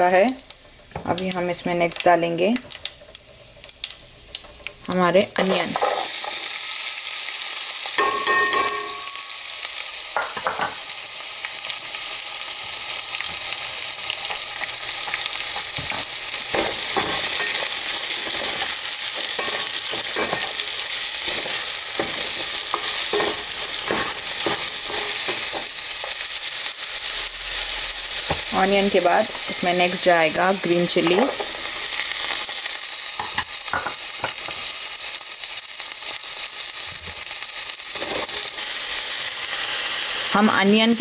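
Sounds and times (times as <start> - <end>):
onion sizzling in hot oil: 0.0 - 41.0
spoon scraping and clinking pan: 8.0 - 9.3, 16.5 - 25.7.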